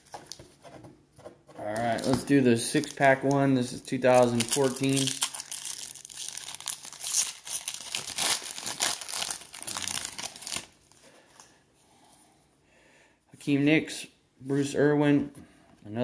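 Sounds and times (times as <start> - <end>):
wrapper tearing and crinkling: 4.0 - 11.0.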